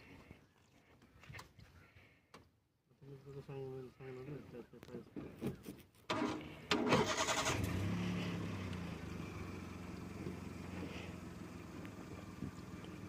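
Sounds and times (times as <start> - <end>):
starter motor cranking: 6.1 - 8.0
car engine idling: 6.2 - 13.0.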